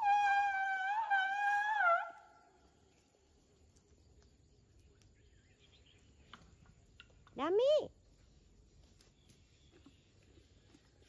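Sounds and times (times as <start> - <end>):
elephant squeaky call: 0.0 - 2.4.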